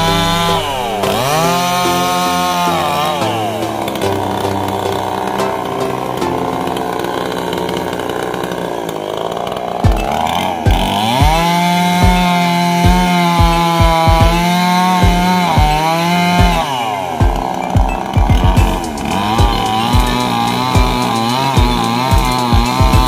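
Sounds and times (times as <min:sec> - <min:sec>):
low thumps: 0:00.0 - 0:02.7, 0:09.8 - 0:15.8, 0:17.2 - 0:23.0
chainsaw engine revving: 0:00.0 - 0:23.0.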